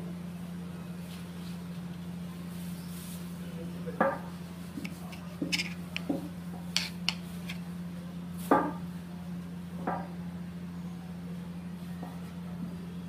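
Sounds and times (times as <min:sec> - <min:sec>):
knife scraping bread crust: 0:04.7 - 0:07.7.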